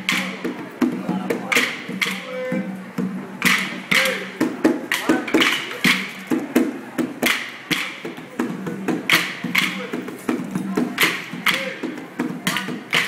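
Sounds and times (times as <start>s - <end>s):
music: 0.0s - 13.0s
wooden sticks clacking: 1.5s - 2.3s.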